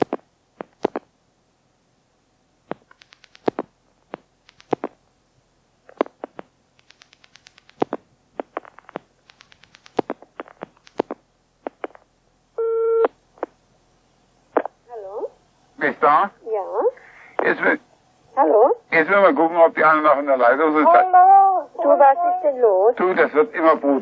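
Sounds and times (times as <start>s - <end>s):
steady telephone tone: 12.6s - 13.2s.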